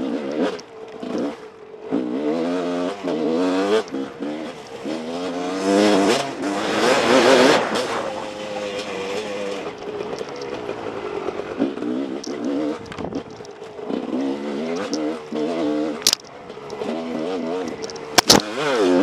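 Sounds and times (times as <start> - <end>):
dirt bike engine revving: 0.0 - 19.0
wind noise on microphone: 12.7 - 13.4.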